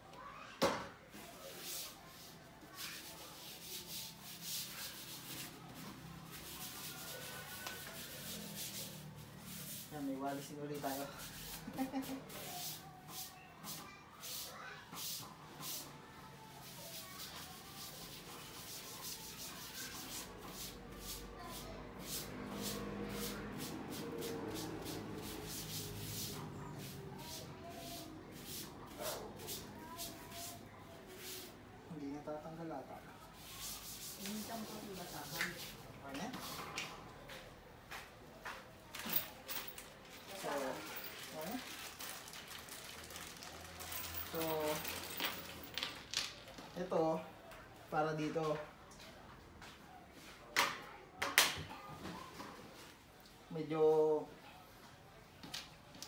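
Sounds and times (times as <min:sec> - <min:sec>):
cloth wiping a furniture panel: 0:01.4 - 0:15.8, 0:16.6 - 0:31.6, 0:33.4 - 0:36.7.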